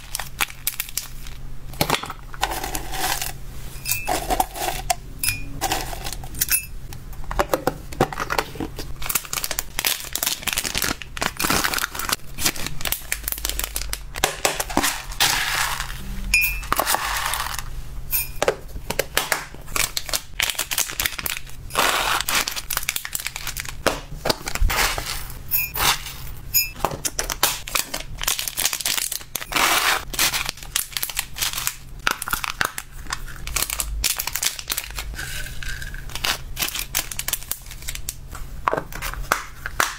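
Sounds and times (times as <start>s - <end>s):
plastic bag crinkling: 8.5s - 17.7s, 19.6s - 26.3s, 27.3s - 38.3s
vegetable chips rustling in tub: 14.7s - 16.0s, 19.7s - 26.3s.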